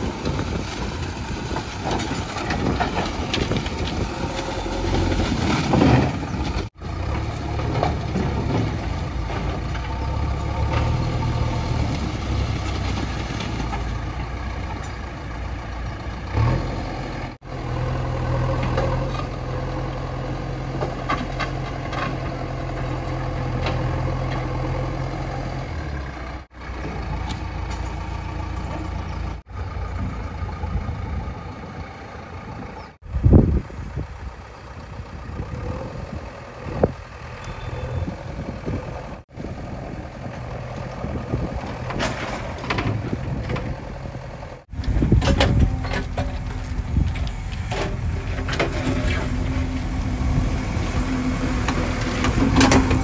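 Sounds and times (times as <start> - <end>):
diesel engine running: 0.0 - 53.0
loud metal clunk: 45.0 - 46.6.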